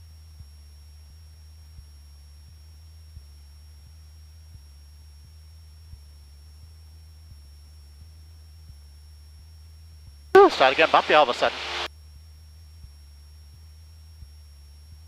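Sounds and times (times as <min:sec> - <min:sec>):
aircraft engine and propeller drone: 0:10.4 - 0:11.9
thin high whine: 0:10.4 - 0:11.9.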